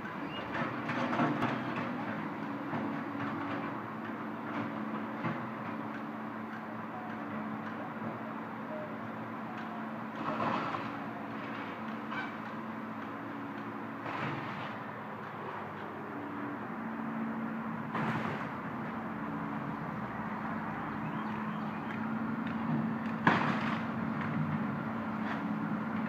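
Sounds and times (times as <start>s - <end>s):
excavator diesel engine running: 0.0s - 26.0s
structure crashing: 23.1s - 24.2s.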